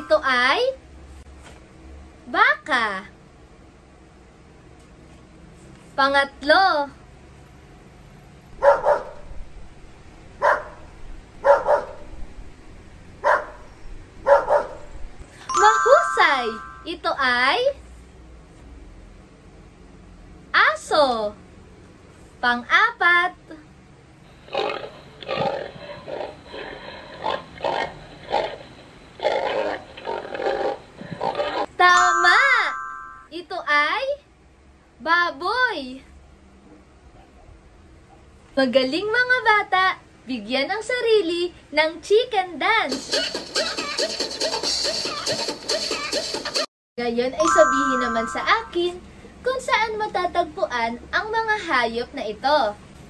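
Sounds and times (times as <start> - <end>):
dog barking: 8.6 - 9.3, 10.4 - 10.8, 11.4 - 12.1, 13.2 - 14.9
pig grunting: 24.5 - 31.7.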